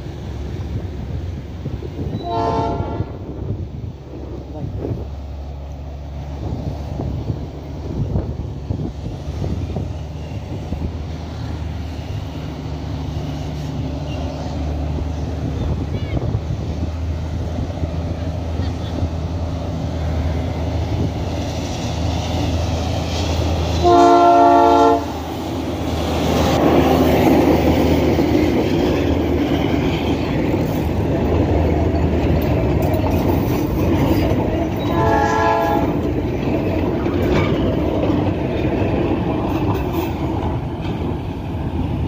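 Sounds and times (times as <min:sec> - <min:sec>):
diesel locomotive engine running: 0:00.0 - 0:42.0
train horn blast: 0:02.1 - 0:03.3, 0:23.7 - 0:25.4, 0:34.8 - 0:36.0
wheels clacking over rails: 0:25.2 - 0:42.0.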